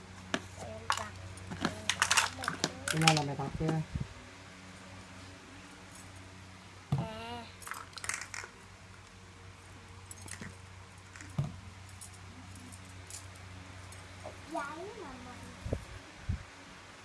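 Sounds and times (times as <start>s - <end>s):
plastic toys clicking and knocking: 0.8s - 3.8s, 7.6s - 8.5s.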